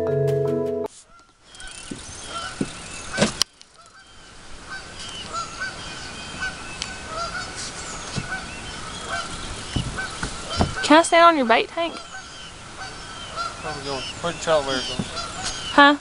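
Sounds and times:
birds calling: 0:01.1 - 0:16.0.

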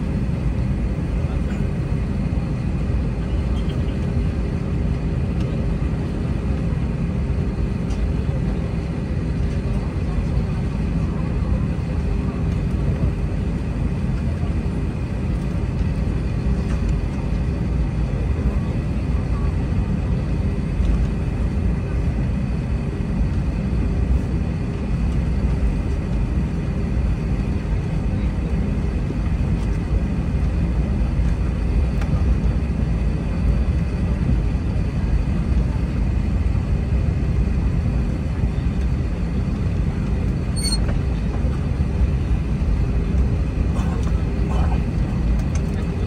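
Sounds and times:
airplane cabin rumble: 0:00.0 - 0:46.0.

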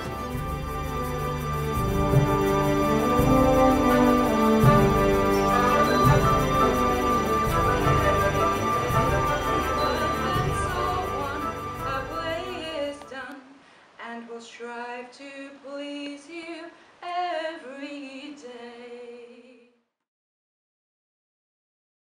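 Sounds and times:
instrumental music: 0:00.0 - 0:13.3
woman singing unaccompanied: 0:05.0 - 0:19.8.

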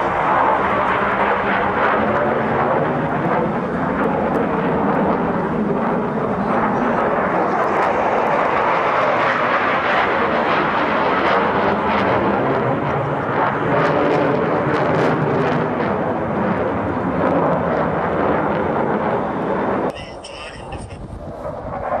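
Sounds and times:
jet flying overhead: 0:00.0 - 0:22.0.

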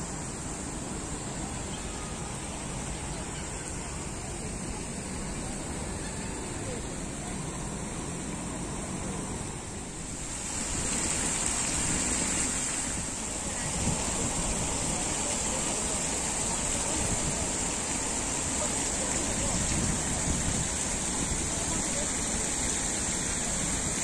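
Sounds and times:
steady high hiss: 0:00.0 - 0:24.0
wind buffeting microphone: 0:12.8 - 0:15.2, 0:19.3 - 0:21.9.

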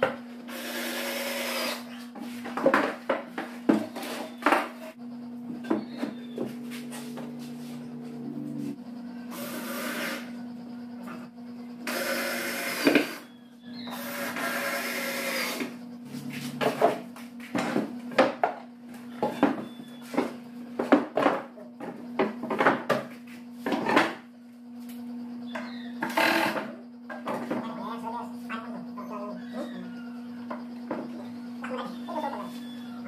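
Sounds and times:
power drill running: 0:00.5 - 0:01.9, 0:09.2 - 0:10.4, 0:11.8 - 0:15.7
low hum: 0:04.3 - 0:12.0.

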